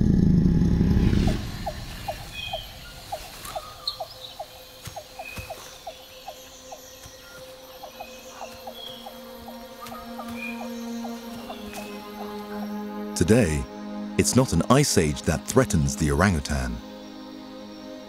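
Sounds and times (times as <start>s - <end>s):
deep low music drone: 0.0s - 2.7s, 7.6s - 18.0s
repeated pipping calls: 1.6s - 17.0s.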